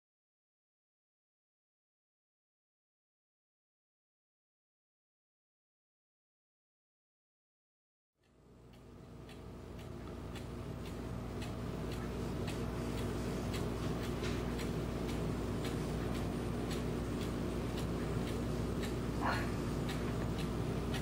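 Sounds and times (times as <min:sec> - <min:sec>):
clock mechanism ticking: 0:08.2 - 0:21.0
steady low hum: 0:08.2 - 0:21.0.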